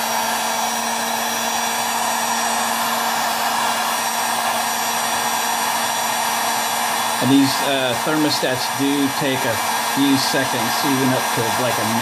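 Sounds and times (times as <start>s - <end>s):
heat gun blowing air: 0.0s - 12.0s.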